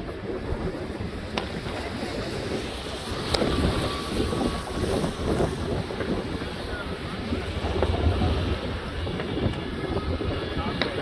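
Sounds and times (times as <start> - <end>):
distant fireworks rumble: 0.0 - 11.0
wind buffeting microphone: 0.0 - 11.0.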